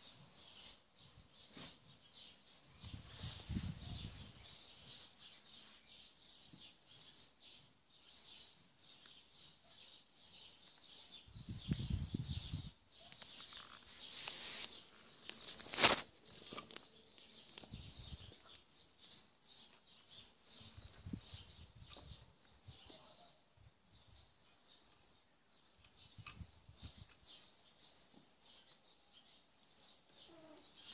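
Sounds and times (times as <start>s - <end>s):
birds chirping: 0.0s - 30.9s.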